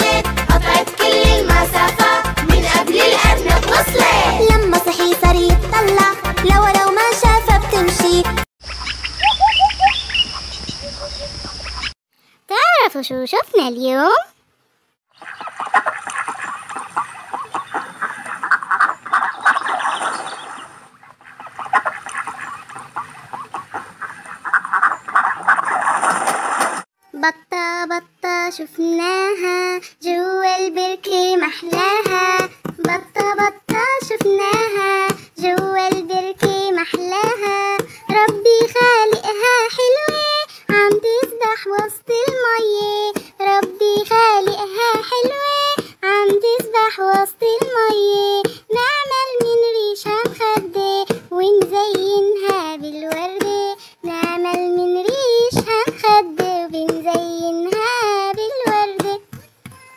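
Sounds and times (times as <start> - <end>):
child singing: 0.0 - 8.5, 27.0 - 59.9
children's song backing track: 0.0 - 8.5, 27.2 - 59.4.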